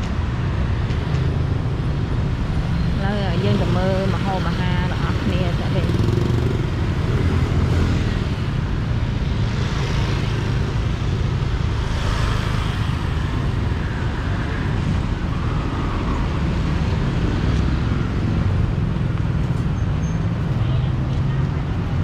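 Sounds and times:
traffic rumble: 0.0 - 22.0.

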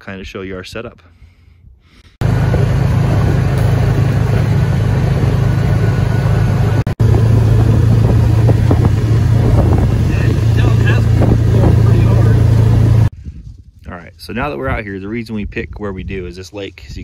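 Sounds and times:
off-road vehicle engine running: 2.2 - 13.1.

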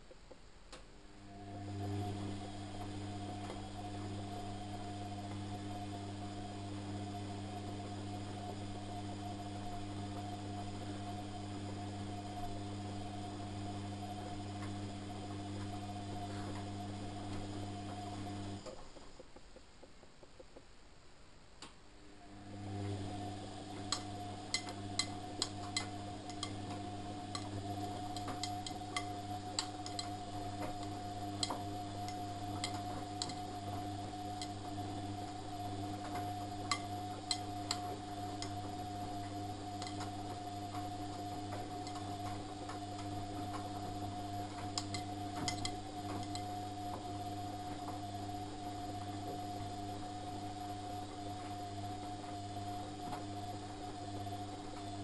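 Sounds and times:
washing machine motor hum: 1.1 - 20.6, 21.6 - 55.0.

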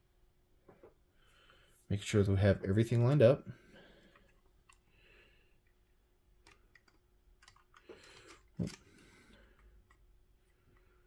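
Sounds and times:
plastic parts clicking and tapping: 4.0 - 4.9, 5.6 - 10.9.

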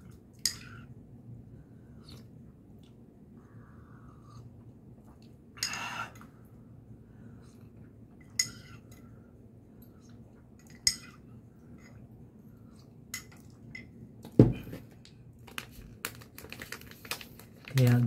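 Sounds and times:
dull thump: 14.4 - 14.8.

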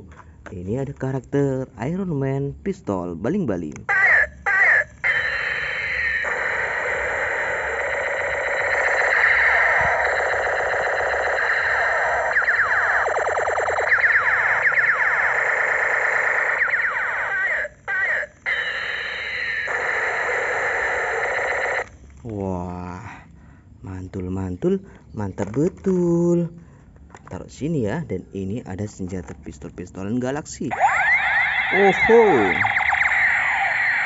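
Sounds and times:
toy pistol electronic siren sounds: 3.9 - 21.9, 30.7 - 34.0.

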